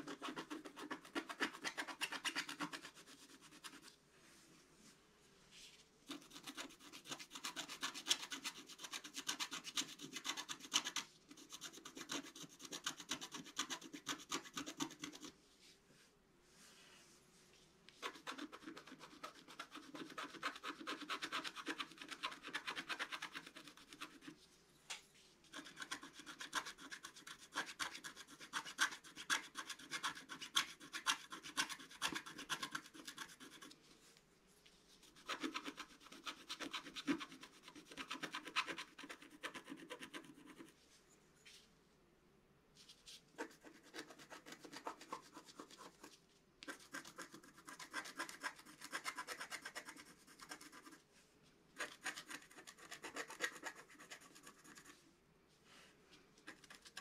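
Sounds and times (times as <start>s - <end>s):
stylus scratching paper: 0.0s - 3.9s, 6.1s - 15.4s, 18.0s - 24.4s, 25.5s - 33.8s, 35.0s - 40.8s, 43.4s - 51.0s, 51.8s - 55.0s.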